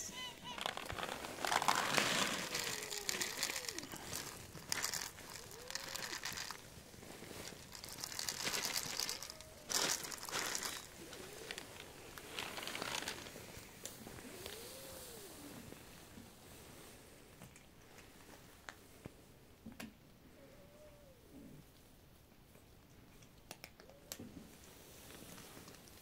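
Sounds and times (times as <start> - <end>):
kibble rattling onto paving stones: 0.4 - 13.3.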